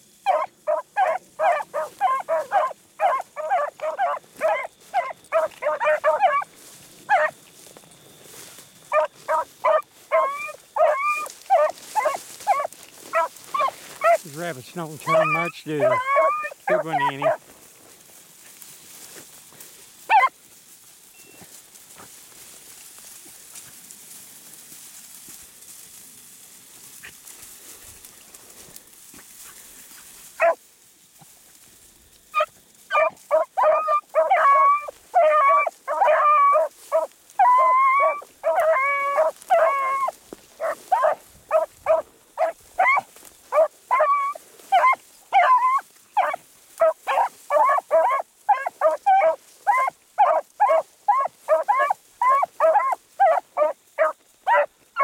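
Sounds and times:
dogs baying: 0:00.2 - 0:07.4, 0:08.9 - 0:17.6, 0:20.1 - 0:20.4, 0:29.2 - 0:30.6, 0:32.3 - 0:55.0.

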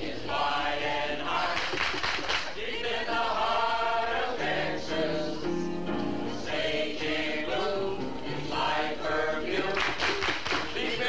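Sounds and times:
group singing in chorus: 0:00.0 - 0:11.0.

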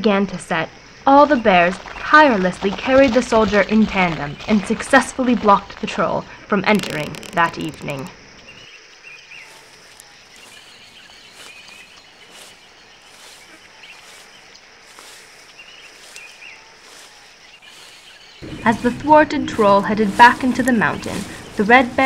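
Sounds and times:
steady outdoor hiss: 0:00.0 - 0:22.0
faint bird chirps: 0:07.0 - 0:19.6.

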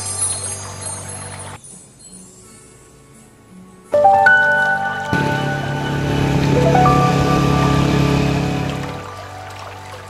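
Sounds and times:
music of sustained tones: 0:04.0 - 0:10.0.

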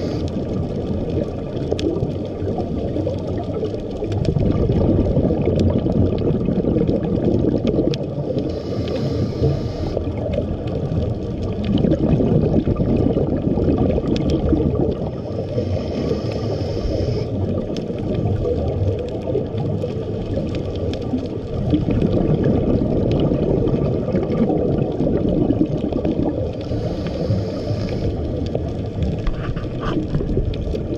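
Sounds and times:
scuba regulator hiss: 0:00.0 - 0:00.3, 0:08.4 - 0:10.0, 0:15.2 - 0:17.3, 0:26.6 - 0:28.2
muffled underwater rush: 0:00.0 - 0:30.9.

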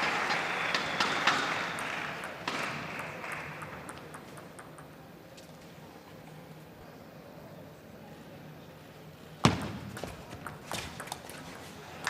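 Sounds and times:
arena crowd applause: 0:00.0 - 0:03.9
table tennis ball ticks: 0:01.8 - 0:05.1.

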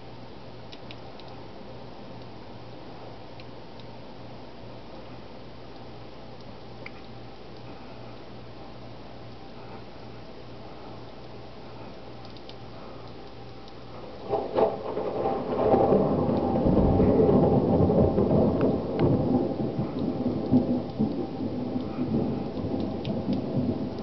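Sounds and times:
thunder crack and rumble: 0:14.1 - 0:24.0.

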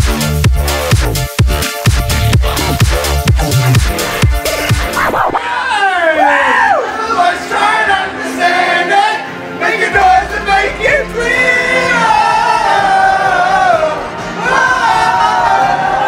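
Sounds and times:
backing music: 0:00.0 - 0:05.5, 0:06.7 - 0:16.0
man singing into microphone: 0:07.0 - 0:14.0.

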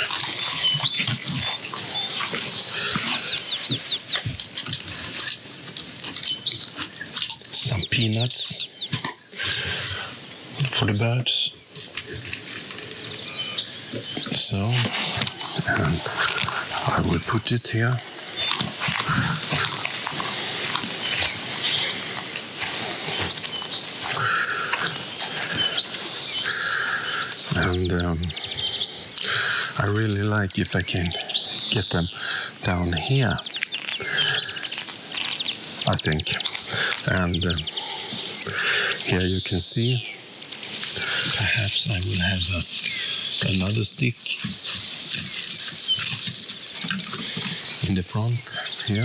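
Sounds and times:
small birds calling: 0:00.0 - 0:49.0
footsteps through long grass: 0:42.5 - 0:47.9.

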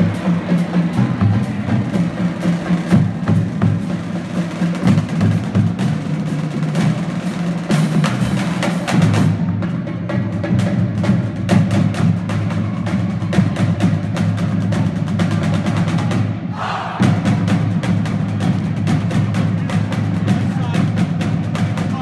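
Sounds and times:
bass drums: 0:00.0 - 0:22.0
snare and tenor drum strokes: 0:00.0 - 0:22.0.

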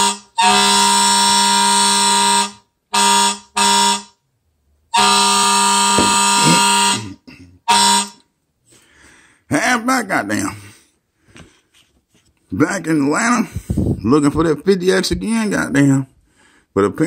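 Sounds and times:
buzzing horn blasts: 0:00.0 - 0:04.2, 0:04.9 - 0:08.2.

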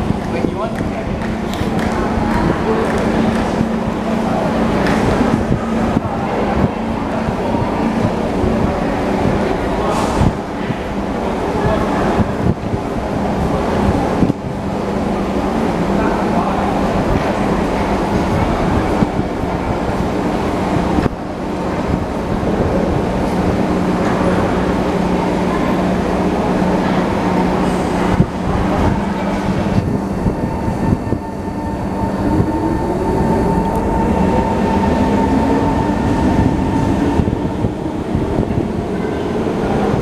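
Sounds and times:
train wheels rumbling: 0:00.0 - 0:40.0
traction motors whining: 0:26.8 - 0:38.6.

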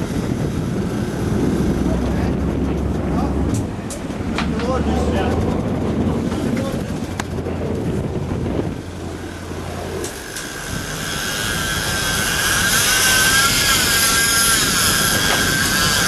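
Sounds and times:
boat engine running: 0:00.0 - 0:16.0
wind and water noise: 0:00.0 - 0:16.0
fishing reel drag screaming: 0:10.0 - 0:16.0.

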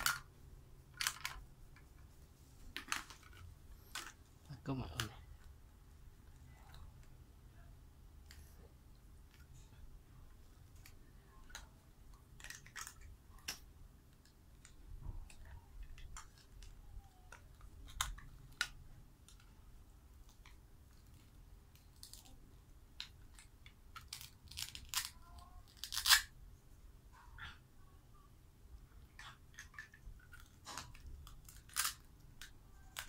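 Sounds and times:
plastic toy pieces clicking: 0:00.9 - 0:01.4, 0:12.3 - 0:14.7, 0:23.0 - 0:26.3, 0:29.2 - 0:33.0
velcro tearing open: 0:24.0 - 0:26.3, 0:31.2 - 0:32.1.

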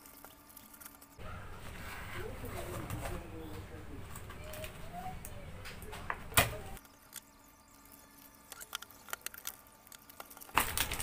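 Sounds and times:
wrapper crinkling: 0:08.6 - 0:11.0.

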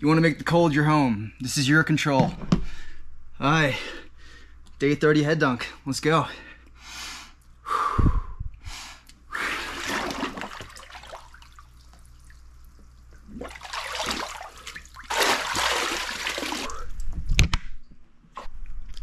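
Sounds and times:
water sloshing and splashing in tub: 0:09.6 - 0:17.2
water pouring: 0:09.7 - 0:17.0.

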